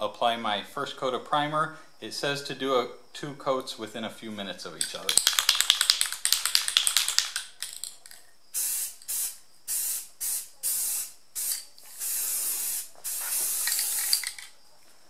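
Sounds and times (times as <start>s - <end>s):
spray can ball rattling: 4.8s - 14.5s
spray nozzle hissing: 8.6s - 14.5s.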